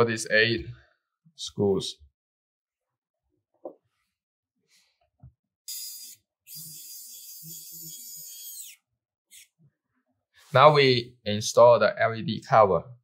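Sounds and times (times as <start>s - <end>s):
electric screwdriver motor whir: 5.7s - 9.4s.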